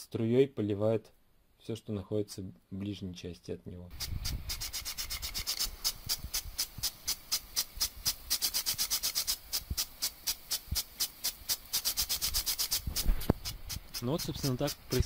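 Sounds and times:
spray hissing: 3.9 - 15.0
impulse sprinkler ticking: 4.0 - 15.0.

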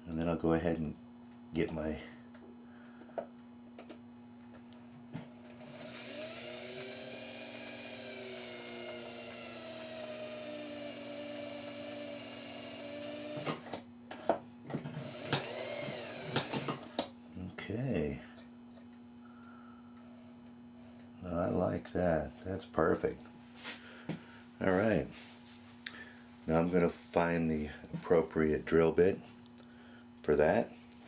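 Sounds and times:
lathe motor whining: 5.6 - 13.8, 15.0 - 16.9.

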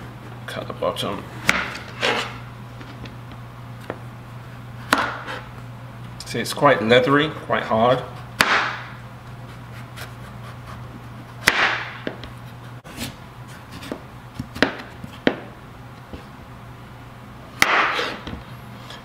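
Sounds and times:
low steady hum: 0.0 - 19.0
knife slicing squash skin: 17.6 - 18.3.

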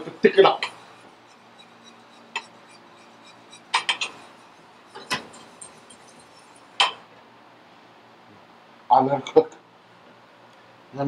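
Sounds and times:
metal whisk clinking on saucepan: 0.0 - 7.0.

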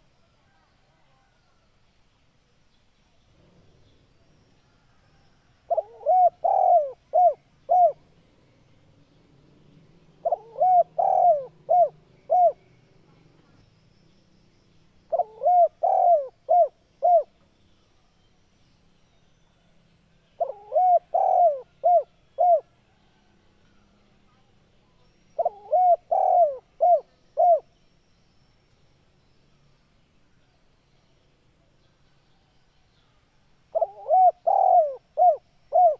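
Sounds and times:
dove cooing: 5.7 - 8.0, 10.2 - 12.6, 15.1 - 17.3, 20.4 - 22.7, 25.4 - 27.7, 33.7 - 35.9.

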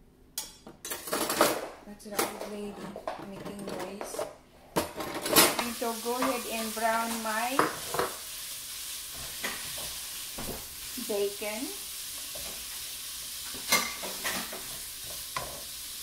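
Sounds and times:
bacon sizzling in a frying pan: 5.3 - 16.0
wooden spatula scraping a pan: 5.6 - 11.3.

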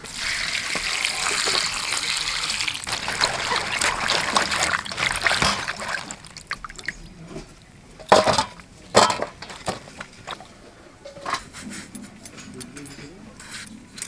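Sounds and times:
water sloshing in a steel bowl: 0.1 - 11.4
faint dripping: 0.8 - 8.8.

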